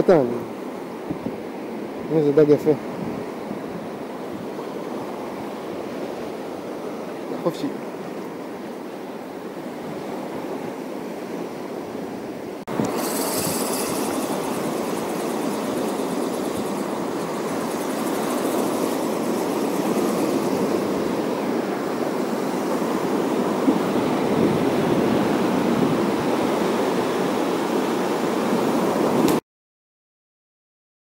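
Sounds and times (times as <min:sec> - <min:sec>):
sea waves washing on shore: 0:00.0 - 0:29.4
wind buffeting microphone: 0:02.8 - 0:06.9, 0:12.7 - 0:29.4.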